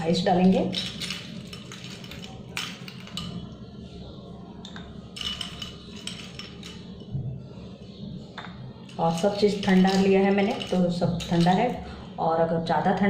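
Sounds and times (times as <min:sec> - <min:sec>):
low steady hum: 0:00.0 - 0:13.0
ice cubes clinking in glass: 0:00.4 - 0:03.4, 0:05.2 - 0:06.9, 0:08.9 - 0:11.8.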